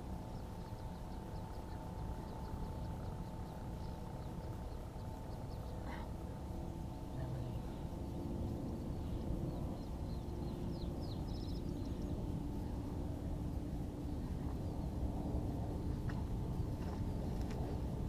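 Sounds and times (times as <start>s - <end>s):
faint steady hum: 0.0s - 18.0s
wind rumbling on microphone: 0.0s - 18.0s
bird chirping: 7.0s - 12.2s.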